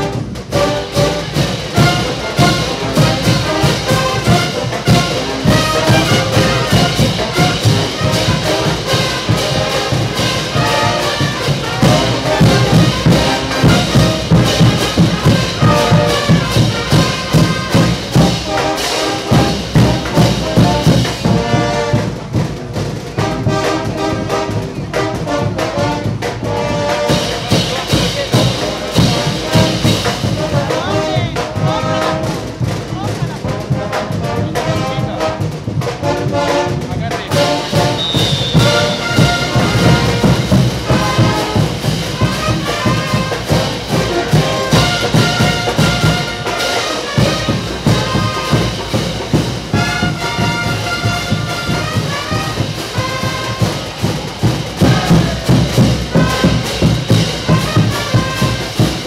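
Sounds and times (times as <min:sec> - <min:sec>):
brass band playing dance music: 0:00.0 - 0:59.0
steady drum beat: 0:00.0 - 0:59.0.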